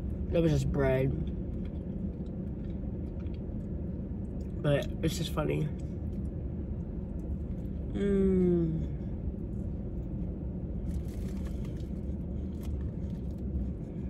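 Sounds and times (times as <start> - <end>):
low background rumble: 0.0 - 14.0
woman humming mm: 7.9 - 9.0.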